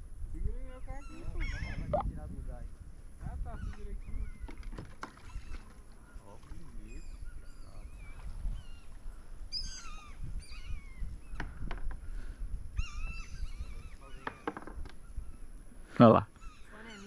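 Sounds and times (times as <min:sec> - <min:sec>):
flock of birds calling: 0:16.4 - 0:17.0.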